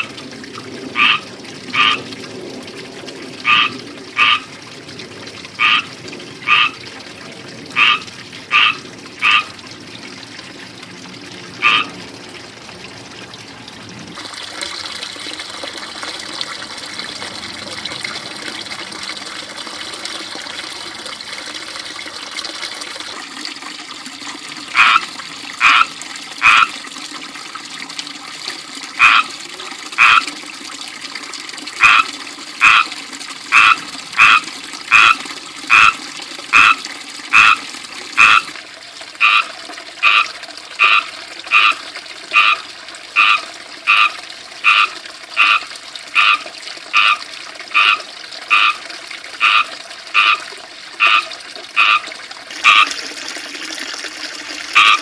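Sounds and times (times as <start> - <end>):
fountain water trickling and splashing: 0.0 - 55.0
frogs chirping: 1.0 - 1.2, 1.8 - 2.0, 3.4 - 4.5, 5.6 - 5.9, 6.5 - 6.8, 7.8 - 9.5, 11.6 - 11.9, 24.8 - 25.0, 29.0 - 29.3, 31.8 - 32.9, 33.5 - 37.6, 38.2 - 38.5, 39.2 - 39.4, 40.0 - 40.2, 40.8 - 41.8, 42.4 - 42.6, 43.2 - 45.6, 46.2 - 46.4, 47.0 - 47.2, 47.8 - 48.8, 49.4 - 50.4, 51.0 - 52.0, 54.8 - 55.0.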